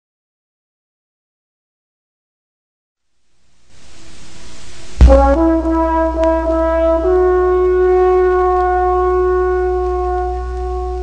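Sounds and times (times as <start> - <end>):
faint hiss: 3.0 - 11.0
brass fanfare: 5.0 - 11.0.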